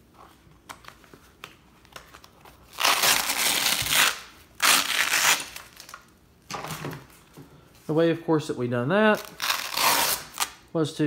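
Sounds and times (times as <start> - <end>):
velcro strips ripping apart: 2.6 - 6.1, 9.1 - 10.6.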